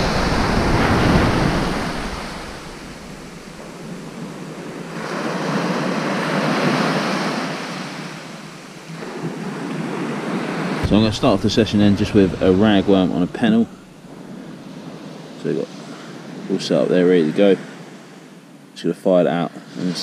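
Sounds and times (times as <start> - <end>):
surf breaking on beach: 0.0 - 18.0.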